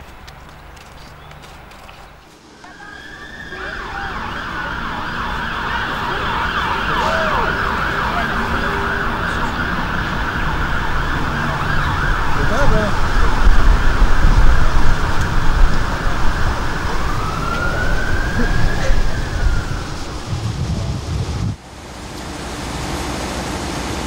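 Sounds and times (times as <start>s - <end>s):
emergency sirens wailing: 2.3s - 24.0s
low rumble: 10.0s - 21.6s.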